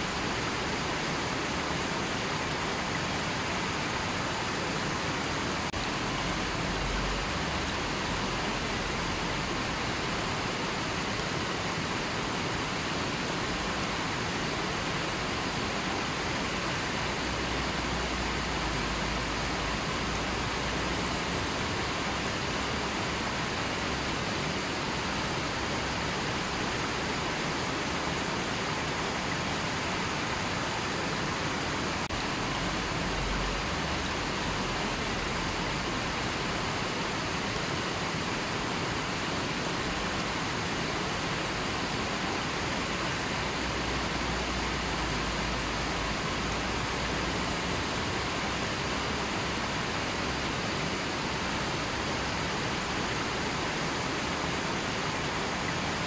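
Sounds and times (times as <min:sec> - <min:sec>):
river rushing over rocks: 0:00.0 - 0:56.0.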